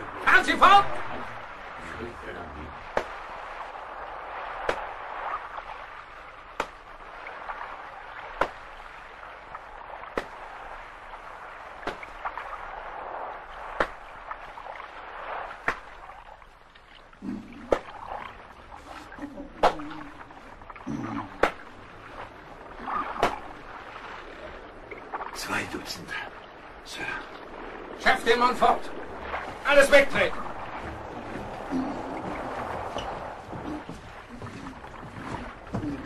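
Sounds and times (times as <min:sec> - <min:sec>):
sea and ship noise: 0:00.0 - 0:36.0
whip lashes cracking: 0:23.1 - 0:23.5.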